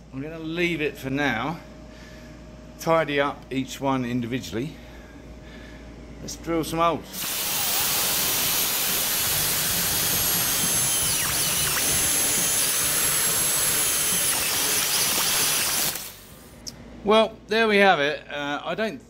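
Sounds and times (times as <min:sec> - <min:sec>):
power drill cutting metal sheet: 0:07.2 - 0:16.3.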